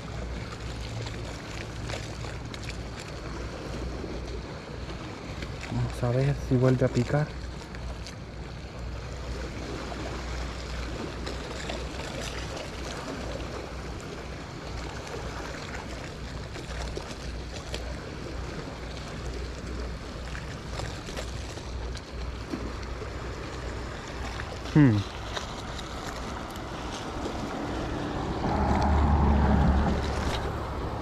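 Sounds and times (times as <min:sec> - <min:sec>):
water washing: 0:10.9 - 0:31.0
wind noise on microphone: 0:28.0 - 0:31.0.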